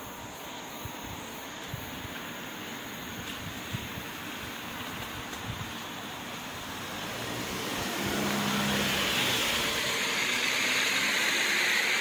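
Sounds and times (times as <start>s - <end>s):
wind rush on microphone: 0.7s - 10.0s
motor vehicle engine hum: 1.3s - 12.0s.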